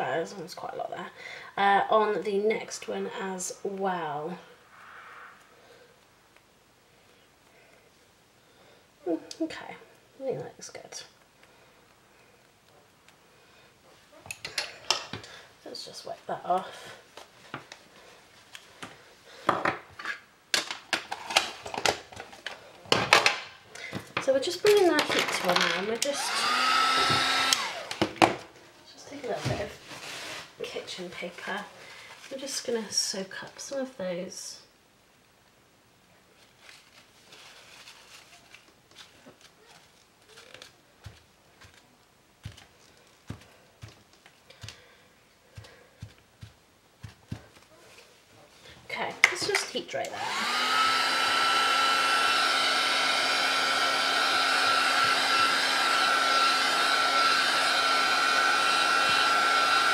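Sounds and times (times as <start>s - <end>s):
rustling: 28.4s - 32.8s, 36.2s - 49.0s.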